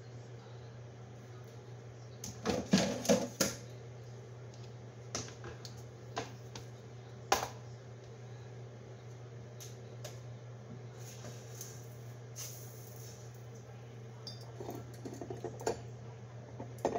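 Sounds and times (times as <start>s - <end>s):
steady low hum: 0.0s - 16.9s
kitchenware clicks and knocks: 2.4s - 3.6s.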